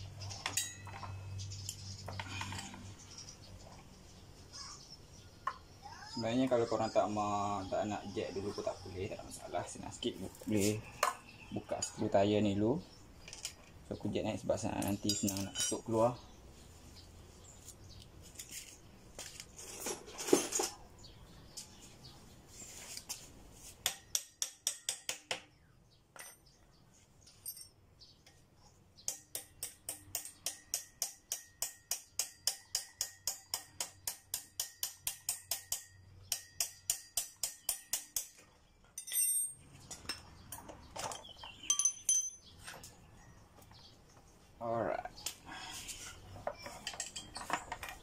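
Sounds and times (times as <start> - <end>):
tool clatter: 18.3 - 20.8, 46.4 - 48.0.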